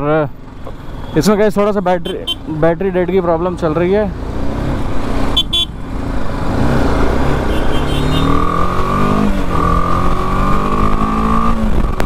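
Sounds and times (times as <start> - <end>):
motorcycle engine accelerating: 4.1 - 12.0.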